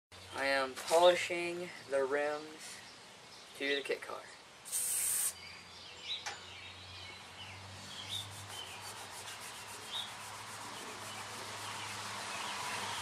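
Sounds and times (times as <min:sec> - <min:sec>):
paper towel wiping wire spokes: 0:08.1 - 0:12.9.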